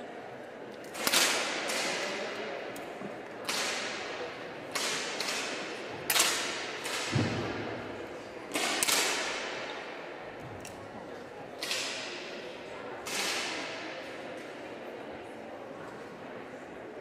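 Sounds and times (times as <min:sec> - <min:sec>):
air pistol shots echoing: 0:08.5 - 0:09.6.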